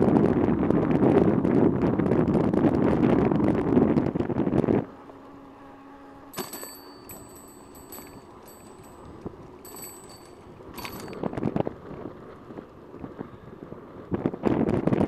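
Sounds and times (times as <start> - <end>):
wind buffeting microphone: 0.0 - 5.2, 7.0 - 15.0
faint high-pitched ringing tone: 5.4 - 11.3.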